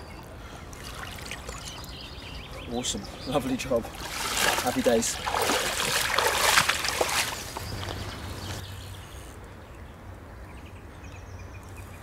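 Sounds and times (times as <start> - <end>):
faint steady background noise: 0.0 - 12.0
water splashing and dripping: 0.2 - 2.0, 3.7 - 8.6.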